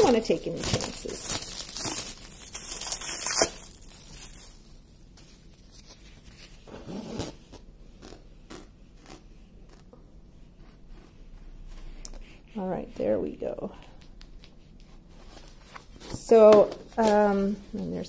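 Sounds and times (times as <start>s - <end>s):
cling wrap crinkling rip: 0.0s - 4.9s.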